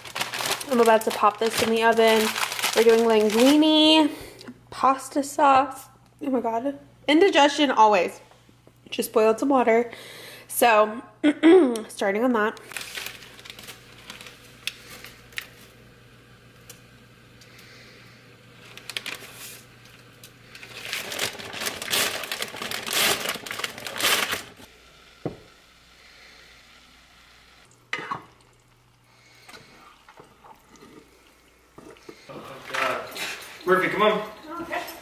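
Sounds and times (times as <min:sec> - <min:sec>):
plastic bag crinkling: 0:00.0 - 0:04.0, 0:12.6 - 0:15.6, 0:18.6 - 0:24.7
pot of water boiling: 0:24.6 - 0:33.0.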